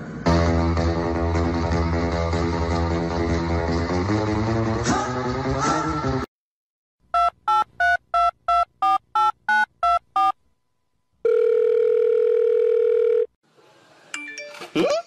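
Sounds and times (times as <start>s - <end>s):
steady phone tone: 7.2s - 10.4s, 11.2s - 13.3s
telephone keypad beeps: 7.2s - 10.4s.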